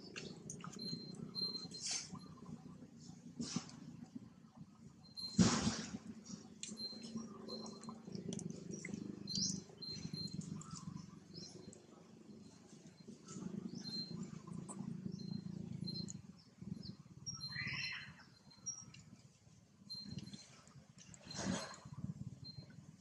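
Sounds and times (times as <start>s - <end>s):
small birds chirping: 6.2s - 19.2s
squealing bird call: 17.4s - 18.2s.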